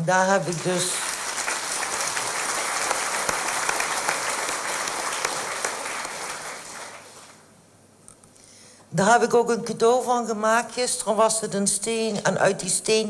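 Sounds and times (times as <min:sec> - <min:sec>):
audience applauding: 0:00.5 - 0:07.4.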